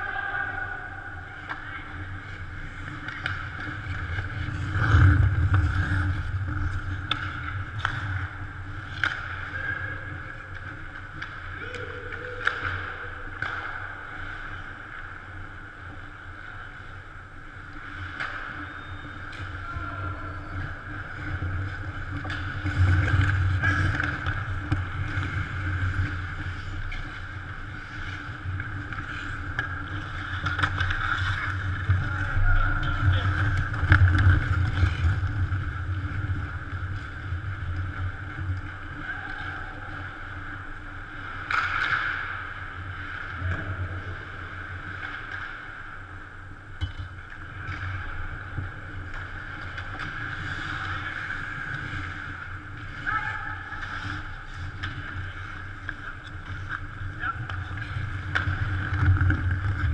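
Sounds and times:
sticks and puck clacking: 1.2s - 43.7s, 44.4s - 59.9s
skate blades scraping ice: 1.5s - 11.5s, 20.4s - 42.9s, 47.4s - 59.9s.

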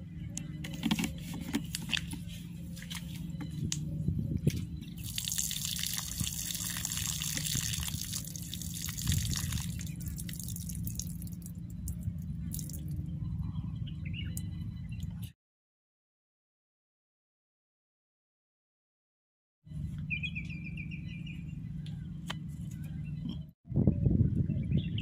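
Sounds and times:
steady low hum: 0.0s - 15.4s, 19.7s - 25.0s
water dripping and trickling: 5.0s - 13.0s.

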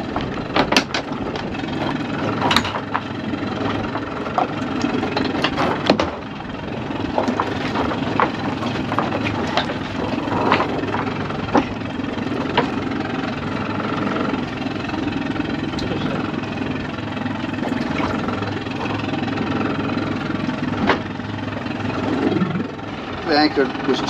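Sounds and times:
boat engine idling: 0.0s - 24.0s
sharp knocks and clatters: 0.1s - 6.3s, 7.0s - 12.9s.

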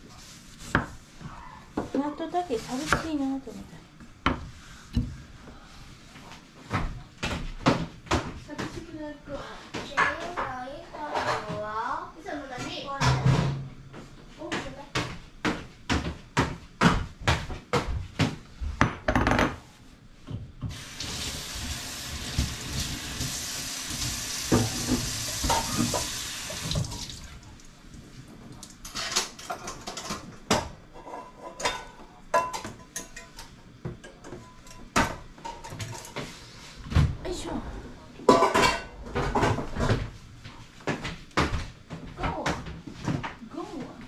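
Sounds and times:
kitchen clatter: 9.7s - 11.8s, 22.3s - 26.9s, 28.6s - 36.4s, 38.2s - 40.1s.

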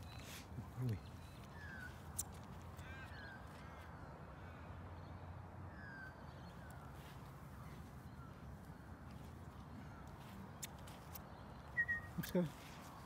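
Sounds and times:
bird chirps: 5.7s - 13.0s.

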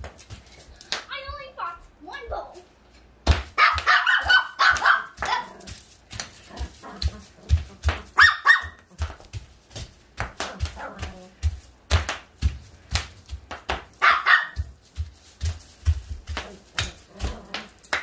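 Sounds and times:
bubble wrap popping: 14.6s - 18.0s.

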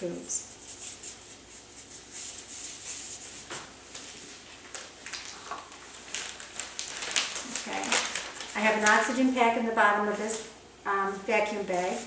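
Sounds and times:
vinyl gloves rustling: 0.4s - 12.0s.

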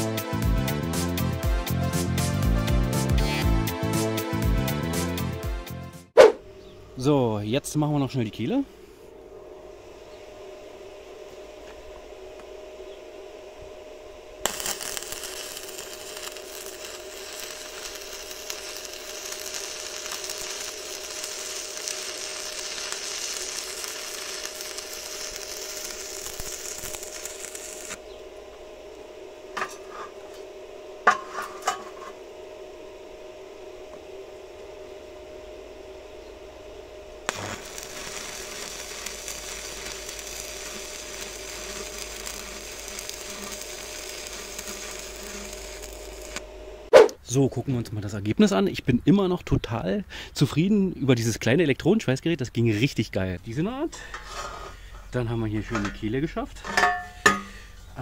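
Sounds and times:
steady low hum: 6.1s - 58.0s
welding arc crackling: 14.4s - 30.4s, 36.7s - 46.9s.

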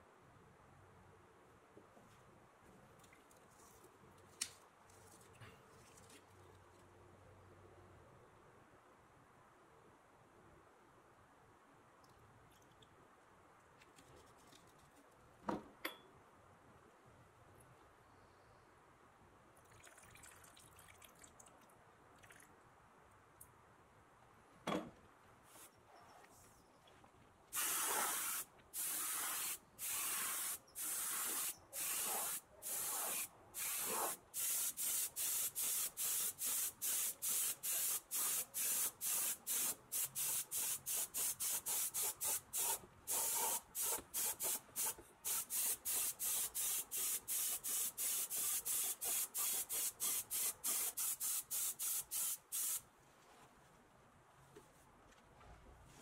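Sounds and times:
paint spray gun hissing: 27.6s - 52.8s.

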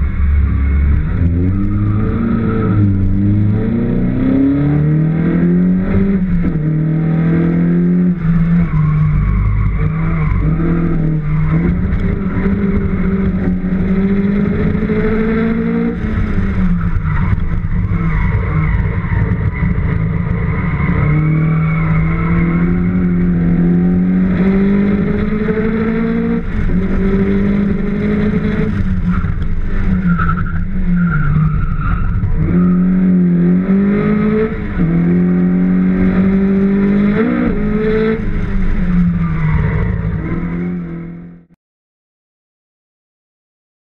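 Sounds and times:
race car engine accelerating: 0.0s - 30.6s, 31.2s - 41.5s.

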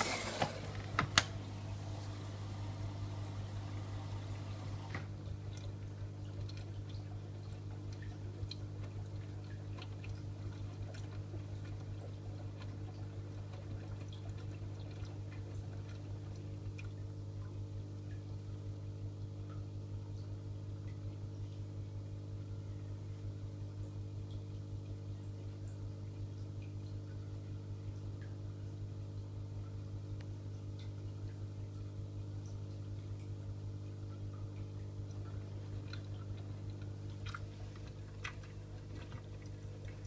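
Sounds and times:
water splashing onto laundry: 0.0s - 17.0s, 34.8s - 40.0s
washing machine hum: 0.0s - 40.0s.

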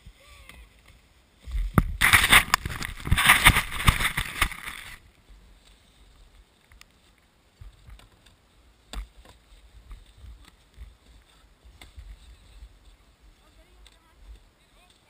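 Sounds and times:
sledge scraping through snow: 1.2s - 6.2s, 8.5s - 15.0s.

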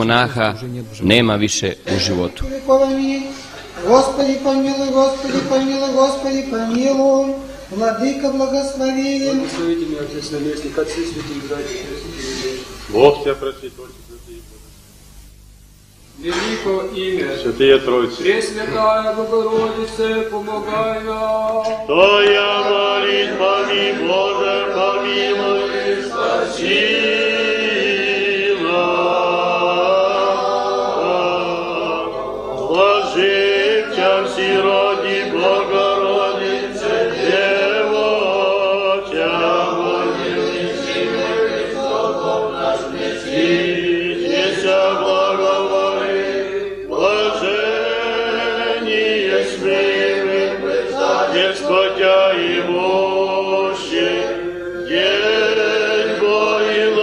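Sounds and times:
men's choir chanting: 1.9s - 7.4s, 18.1s - 57.0s.

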